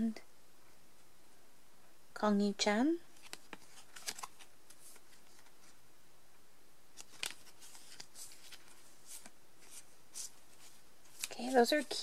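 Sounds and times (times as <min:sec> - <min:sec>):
cards rustling: 0:03.1 - 0:05.8, 0:07.0 - 0:12.0.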